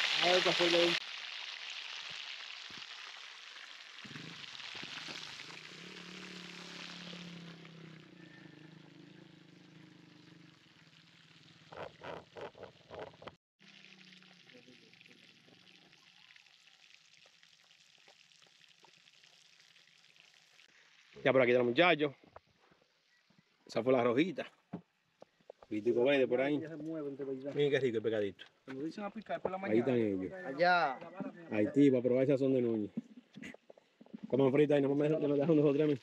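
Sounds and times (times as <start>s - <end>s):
fish sizzling in hot oil: 0.0s - 8.4s, 13.6s - 21.4s, 35.0s - 36.0s.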